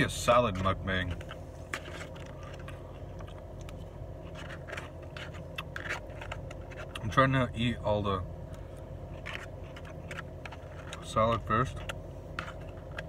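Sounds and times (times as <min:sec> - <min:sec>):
steady low hum: 0:00.0 - 0:13.0
plastic fork scraping container: 0:00.4 - 0:03.4, 0:04.2 - 0:07.2, 0:09.1 - 0:13.0
crunchy chewing: 0:00.5 - 0:07.2, 0:08.5 - 0:13.0.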